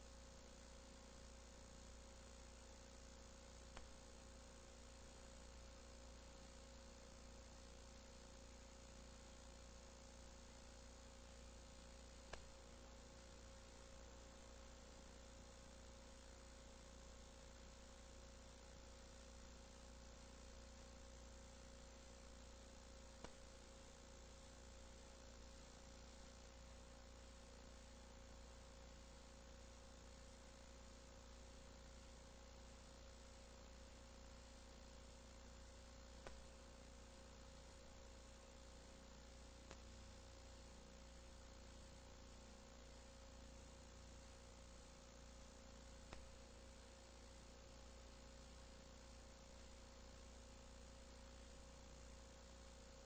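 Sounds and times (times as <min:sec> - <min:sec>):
faint electrical hum and hiss: 0:00.0 - 0:53.0
faint single clicks: 0:12.3 - 0:12.5.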